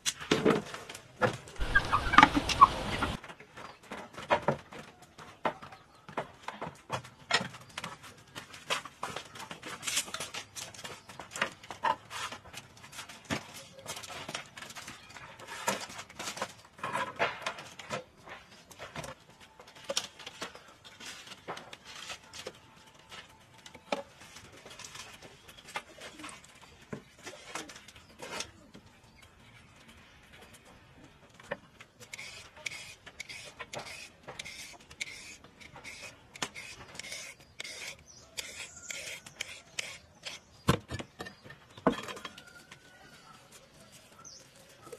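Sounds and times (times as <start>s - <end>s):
knife peeling fruit: 32.0s - 40.6s.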